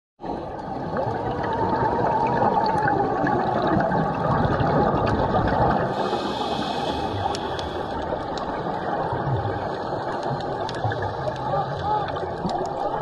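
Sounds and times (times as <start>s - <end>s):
muffled underwater rushing: 0.2s - 13.0s
faint clicks: 6.9s - 8.7s, 10.0s - 13.0s.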